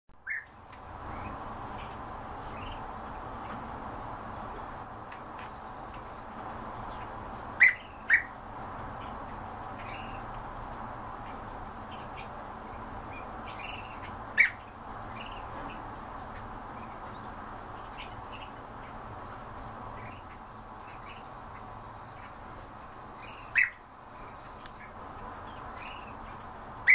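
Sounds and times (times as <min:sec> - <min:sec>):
bee-eaters calling: 0:07.6 - 0:08.4, 0:13.5 - 0:18.5, 0:19.6 - 0:23.8, 0:24.7 - 0:26.9.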